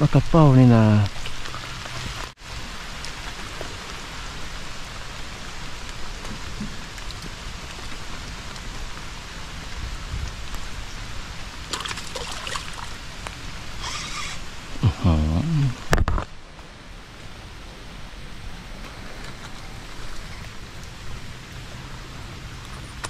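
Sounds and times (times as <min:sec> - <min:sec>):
steady rain falling: 0:00.0 - 0:23.0.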